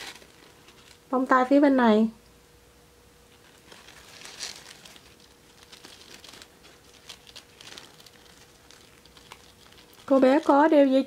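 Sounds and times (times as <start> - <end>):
faint fabric rustling: 3.3 - 10.7.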